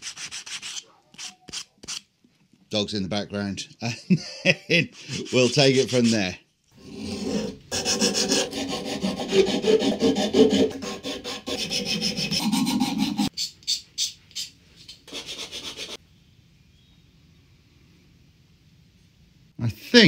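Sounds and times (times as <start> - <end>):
sanding wood by hand: 5.0 - 6.3, 7.2 - 13.3.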